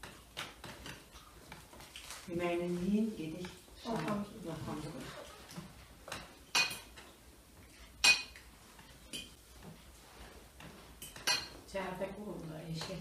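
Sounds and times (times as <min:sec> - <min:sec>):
cutlery and plates clinking: 0:06.0 - 0:07.2, 0:07.9 - 0:09.4, 0:11.0 - 0:11.7.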